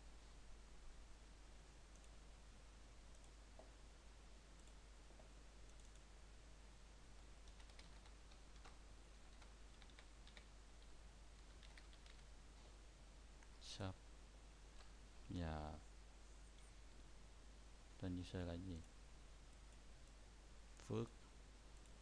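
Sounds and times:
low hum and hiss: 0.0 - 22.0
computer keyboard keystrokes: 7.4 - 10.5, 11.4 - 12.2.

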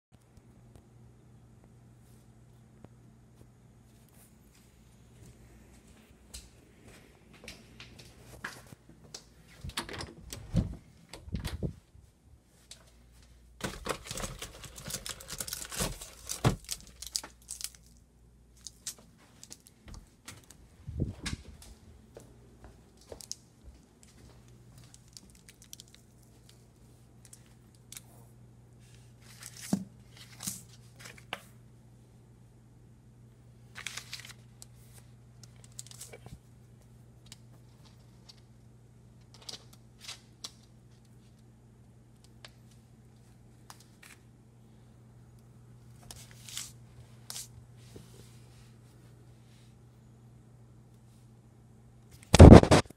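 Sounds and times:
steady low hum: 0.2 - 52.9
rustling and crinkling: 3.3 - 31.6, 33.6 - 41.5, 45.8 - 49.7.

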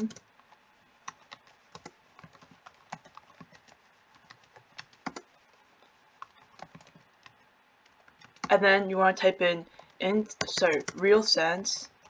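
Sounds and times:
computer keyboard keystrokes: 1.1 - 5.3, 6.2 - 8.5, 10.4 - 11.1.

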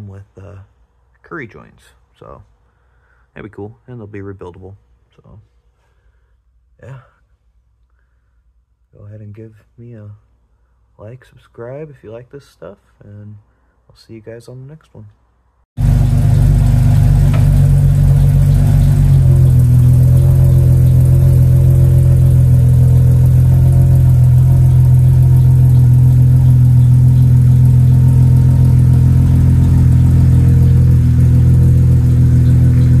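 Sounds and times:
loud car engine running: 15.8 - 33.0.

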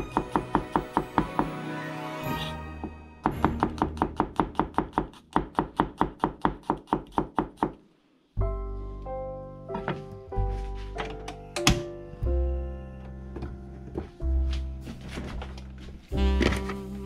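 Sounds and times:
background music with held chords: 0.0 - 4.0, 8.4 - 17.0.

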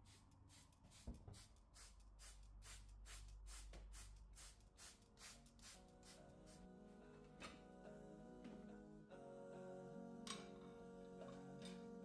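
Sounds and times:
spray bottle hissing: 0.0 - 6.6.

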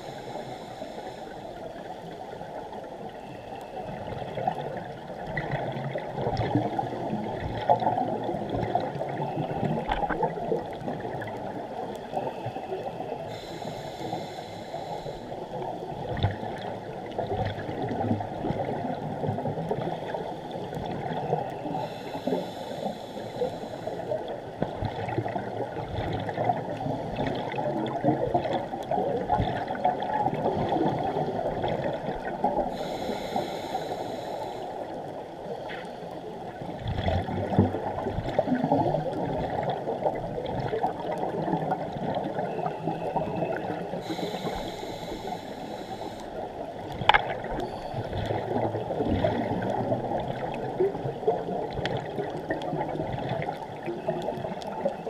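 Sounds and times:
diver breathing through regulator: 0.0 - 1.6, 13.3 - 15.4, 21.6 - 24.2, 32.6 - 35.0, 44.0 - 46.5
underwater bubbling: 0.0 - 55.0.

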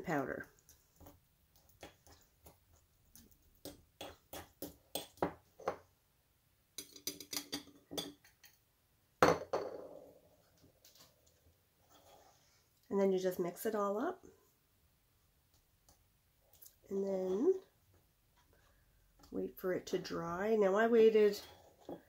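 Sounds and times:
spoon scraping paste in bowl: 0.6 - 5.2.

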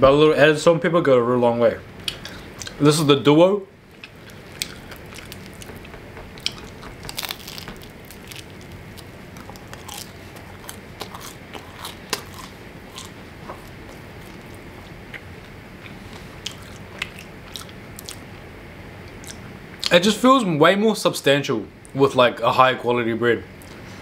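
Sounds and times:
crunchy bread chewing: 3.9 - 18.4.

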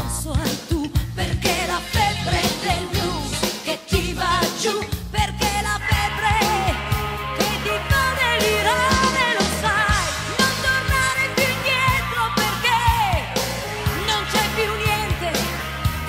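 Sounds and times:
blues band playing: 0.0 - 16.0
bending lead melody: 5.8 - 16.0.

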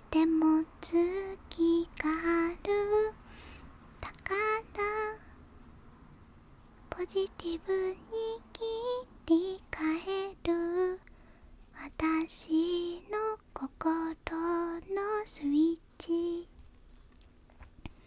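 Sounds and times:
woman singing softly: 0.0 - 3.2, 4.0 - 5.3, 6.9 - 11.1, 11.7 - 16.6.

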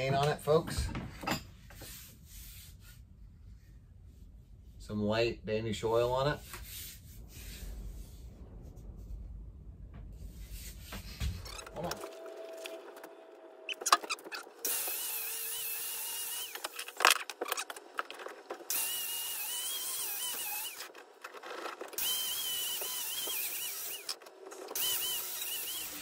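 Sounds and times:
angle grinder whine: 11.3 - 26.0.

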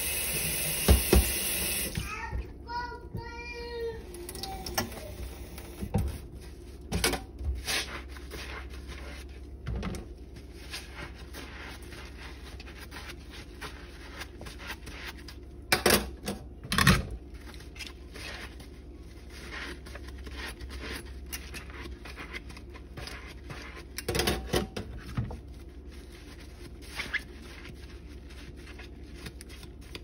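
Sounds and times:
sponge scrubbing dishes: 4.5 - 15.7, 17.2 - 30.0.

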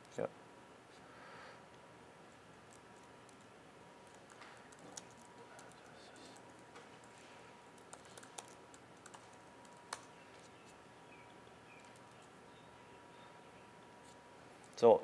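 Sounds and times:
faint keyboard typing: 2.5 - 10.8, 11.7 - 12.4.

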